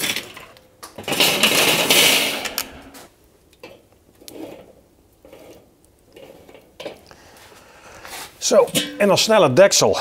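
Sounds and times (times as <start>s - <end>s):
charcoal clattering into barbecue: 0.0s - 7.1s, 8.4s - 9.4s.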